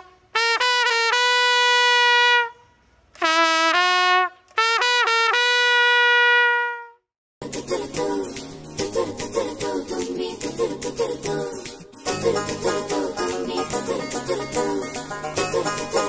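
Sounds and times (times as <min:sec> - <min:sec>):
solo trumpet melody: 0:00.0 - 0:07.0
other music: 0:07.4 - 0:16.0.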